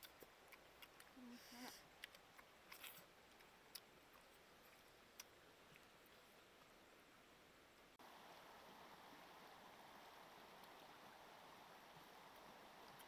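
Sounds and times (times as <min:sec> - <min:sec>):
people chewing food: 0:00.0 - 0:06.8.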